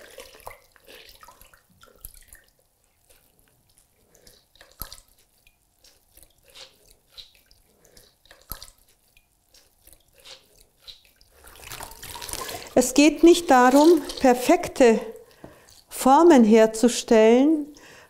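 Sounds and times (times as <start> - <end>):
water dripping into bucket: 0.0 - 2.7, 10.9 - 15.9.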